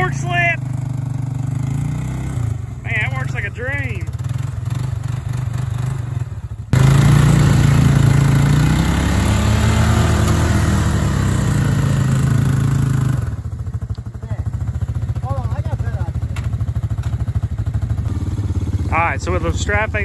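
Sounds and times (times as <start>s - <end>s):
engine idling and revving: 0.0s - 20.0s.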